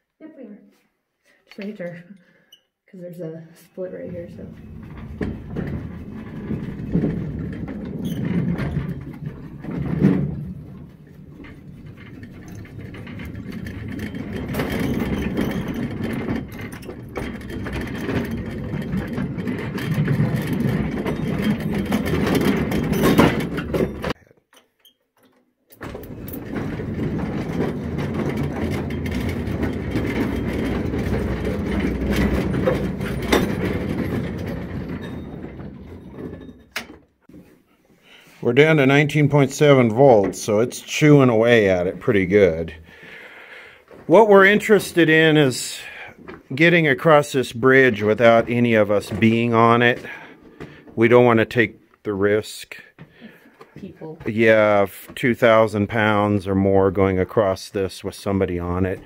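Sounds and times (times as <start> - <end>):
steel wheels rumbling on rails: 4.1 - 24.2, 26.0 - 36.5.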